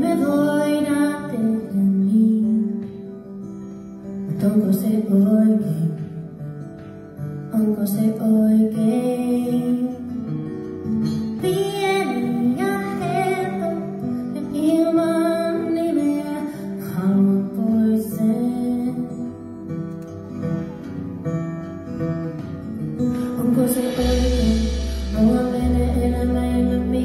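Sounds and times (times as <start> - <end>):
woman singing: 0.0 - 3.4, 4.1 - 19.9, 23.0 - 27.0
live band music: 19.9 - 27.0
deep bass note: 24.0 - 26.6.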